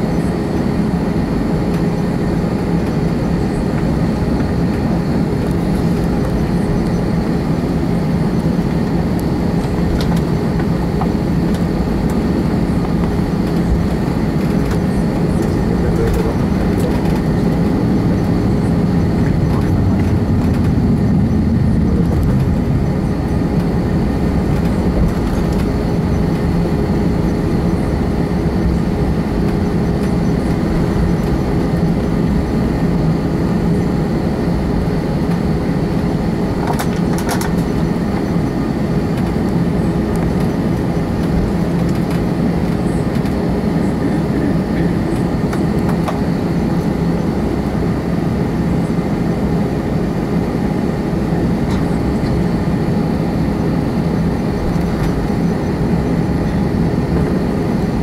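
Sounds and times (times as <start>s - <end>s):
jet engine drone in cabin: 0.0s - 58.0s.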